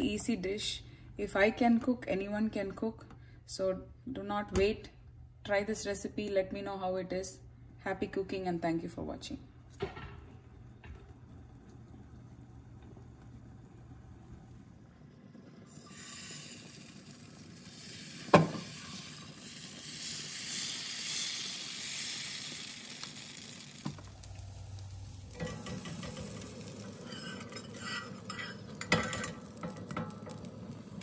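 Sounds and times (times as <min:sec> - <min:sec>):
batter sizzling on a hot pan: 0:15.7 - 0:31.0
metal spatula scraping a pan: 0:25.3 - 0:30.4.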